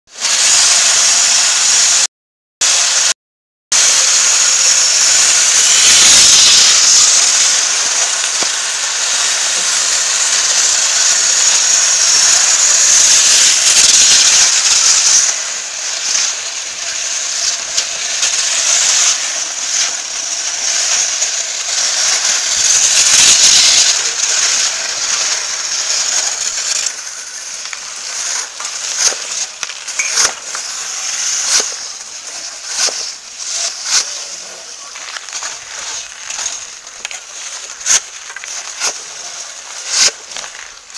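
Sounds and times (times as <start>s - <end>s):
ice scraper scraping rink ice: 3.8s - 40.9s
hockey sticks and puck clicking: 26.4s - 34.2s, 34.9s - 40.9s.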